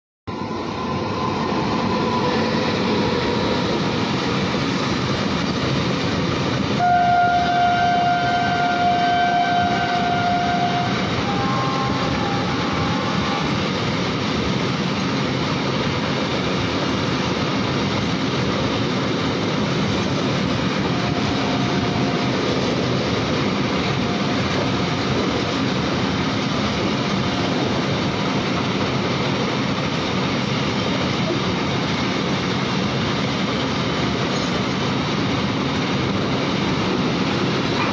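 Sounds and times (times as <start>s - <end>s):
freight train rumbling on rails: 0.3s - 37.9s
locomotive horn: 6.8s - 13.6s, 20.8s - 22.7s, 23.8s - 25.3s.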